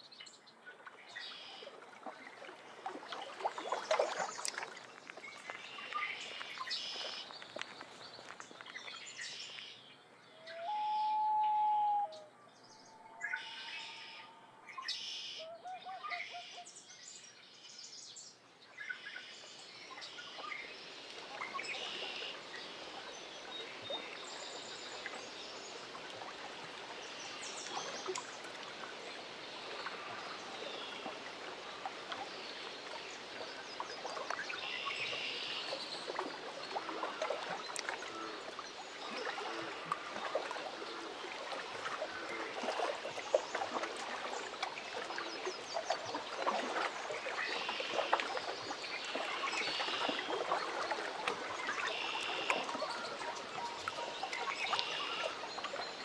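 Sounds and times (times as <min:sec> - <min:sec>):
water lapping at shore: 0:00.0 - 0:56.0
long held bird call: 0:10.3 - 0:16.7.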